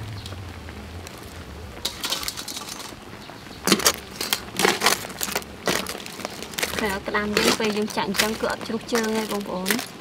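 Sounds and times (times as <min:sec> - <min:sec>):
metal tongs clinking on wok: 0:01.8 - 0:03.0
crab shells clattering: 0:01.8 - 0:10.0.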